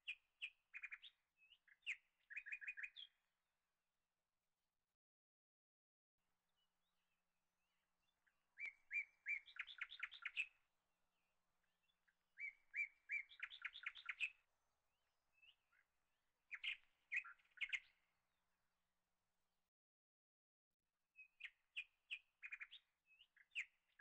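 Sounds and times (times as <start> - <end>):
songbird chirping and trilling: 0.0 - 3.3, 6.5 - 10.6, 11.2 - 14.5, 15.3 - 18.1, 21.2 - 24.0.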